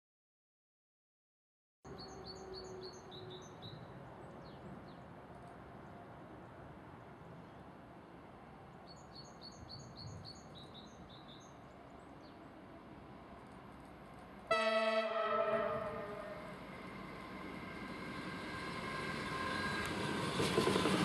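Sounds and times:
bird chirping: 8.8s - 12.4s
vehicle horn blast: 14.5s - 16.4s.

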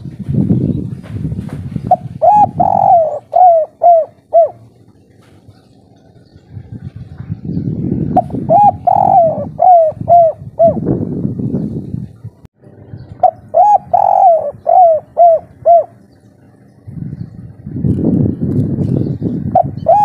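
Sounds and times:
low rumbling noise: 0.0s - 20.0s
dove cooing: 1.8s - 6.6s, 8.0s - 10.9s, 13.2s - 16.2s, 19.5s - 20.0s.

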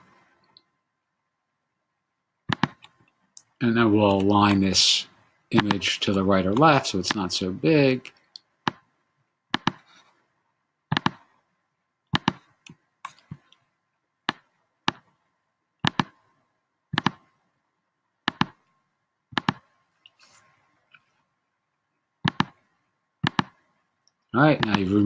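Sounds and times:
computer mouse clicks: 2.5s - 3.5s, 5.6s - 6.6s, 9.5s - 9.9s, 10.9s - 11.3s, 12.1s - 13.6s, 15.8s - 16.2s, 16.9s - 17.3s, 18.3s - 18.7s, 19.3s - 20.2s, 22.2s - 22.6s, 23.2s - 24.9s.

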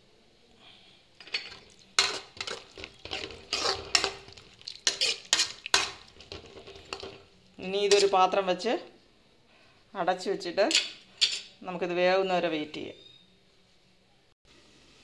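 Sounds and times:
spoon scraping metal pan: 1.2s - 8.4s.

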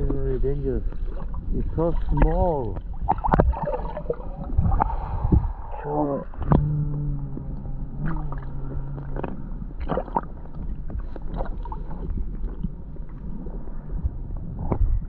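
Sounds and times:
low steady hum: 0.0s - 15.0s
underwater moving water rumble: 0.0s - 15.0s
splashes and knocks: 1.0s - 5.5s.

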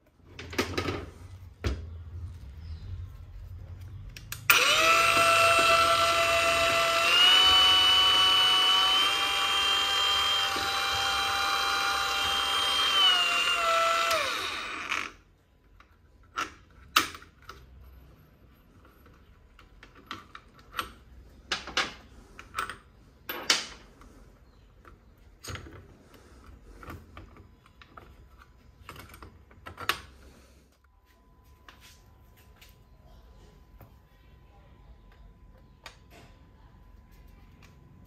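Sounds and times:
angle grinder motor whining: 4.5s - 15.2s.

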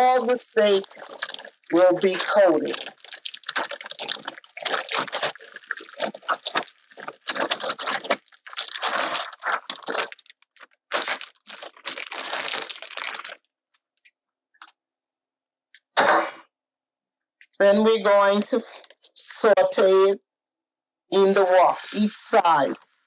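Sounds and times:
plastic bag crinkling: 0.0s - 13.5s.

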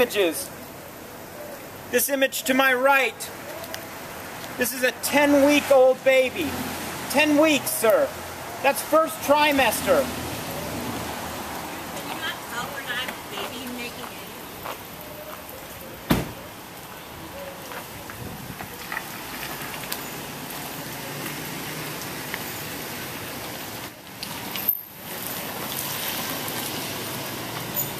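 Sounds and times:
wet outdoor hiss: 0.0s - 27.9s
sharp knock: 16.1s - 16.4s
car driving slowly and stopping: 16.6s - 27.9s.

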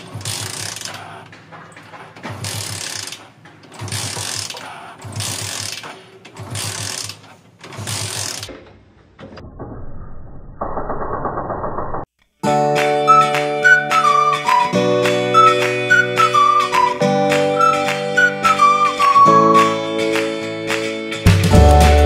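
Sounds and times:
motorcycle kick-start cranking: 3.8s - 8.6s.

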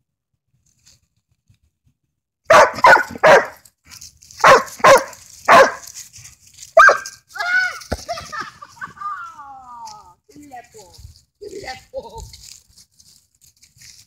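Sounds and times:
dog barking: 2.5s - 3.6s, 4.4s - 5.9s, 6.8s - 7.1s.

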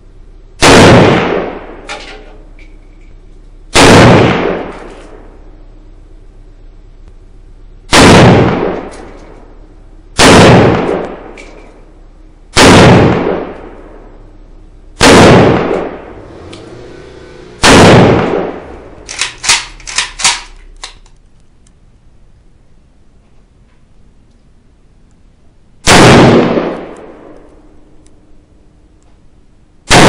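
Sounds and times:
rifle shots with long echo: 0.6s - 2.5s, 3.7s - 5.6s, 7.9s - 21.0s, 25.8s - 28.6s
fainter sharp cracks: 17.6s - 21.7s.

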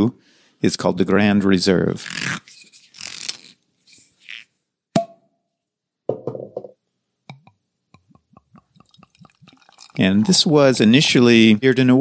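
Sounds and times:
beer glugging from bottle: 8.0s - 10.5s.

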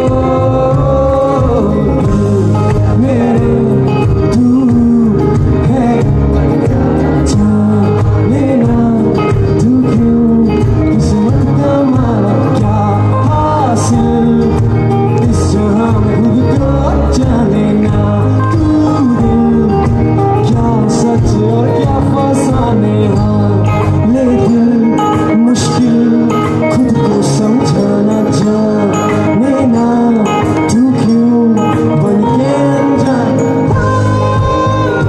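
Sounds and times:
live rock band playing: 0.0s - 35.0s
man singing lead vocal: 0.0s - 35.0s.

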